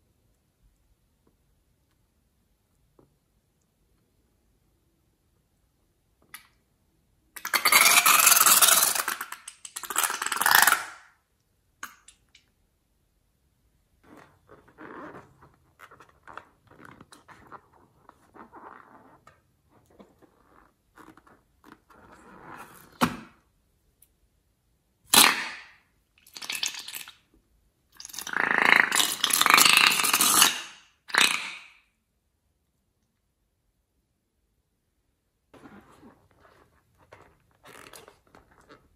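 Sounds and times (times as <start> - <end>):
rubber balloon squeaking: 14.0 - 23.0.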